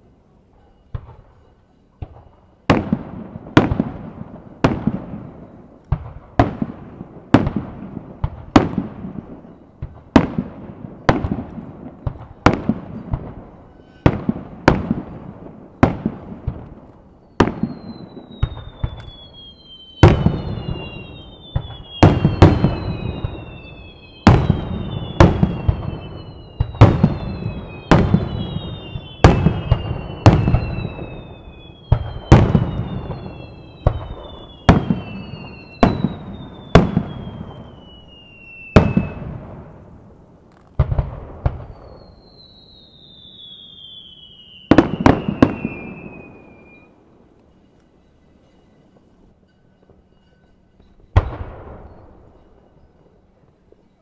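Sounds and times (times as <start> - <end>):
high falling whistles: 17.2 - 39.2, 41.6 - 54.0.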